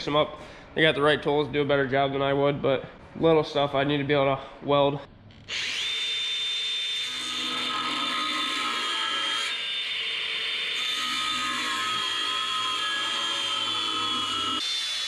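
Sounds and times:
angle grinder cutting steel pipe: 5.5 - 15.0.

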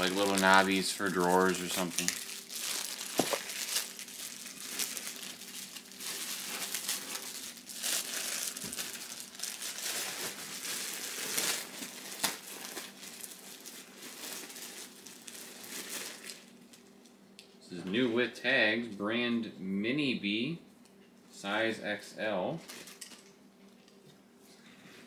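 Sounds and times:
plastic bags crinkling: 0.0 - 16.9, 22.6 - 23.3.

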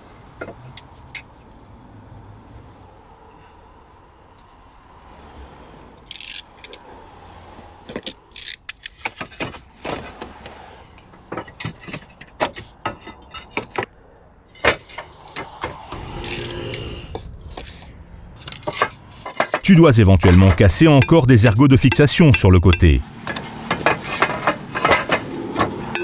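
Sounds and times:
roof tiles clinking and scraping: 11.3 - 13.9, 18.5 - 21.2, 23.7 - 26.0.

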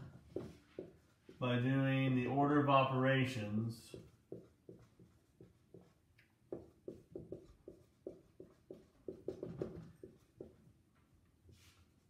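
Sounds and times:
marker writing on whiteboard: 0.2 - 2.1, 3.9 - 10.7.

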